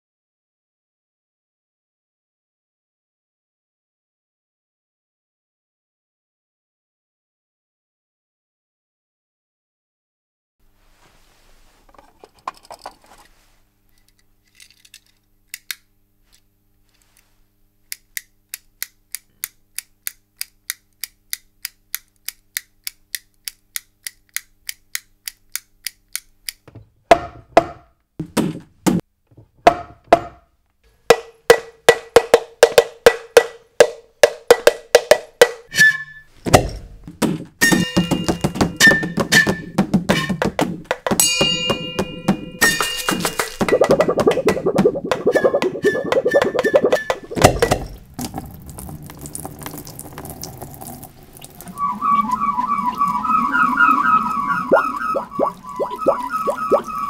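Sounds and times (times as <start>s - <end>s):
ringing metallic tone: 37.6s - 39.6s, 41.2s - 43.4s.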